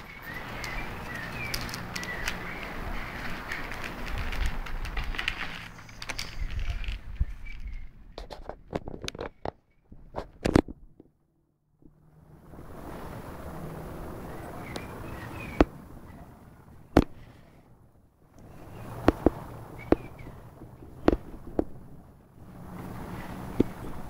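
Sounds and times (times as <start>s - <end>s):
fur rustling on microphone: 0.0s - 9.0s
microphone handling clicks and knocks: 3.5s - 11.2s, 16.9s - 17.2s, 19.0s - 21.9s.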